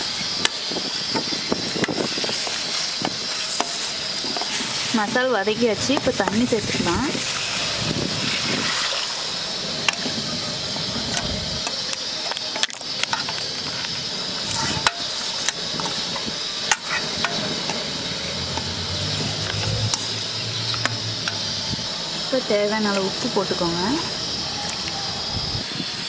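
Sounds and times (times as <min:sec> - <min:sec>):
paste sizzling in a pan: 0:00.0 - 0:26.0.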